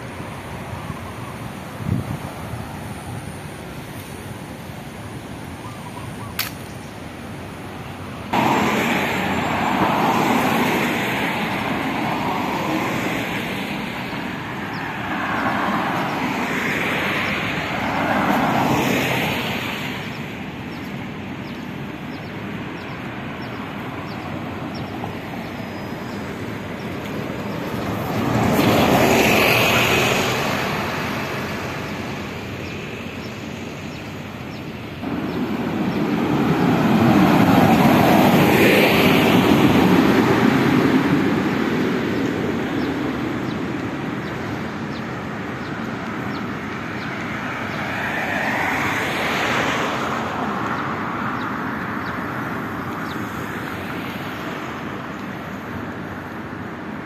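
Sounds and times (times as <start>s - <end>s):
road traffic passing: 0.0s - 57.0s
sharp click: 6.3s - 6.8s.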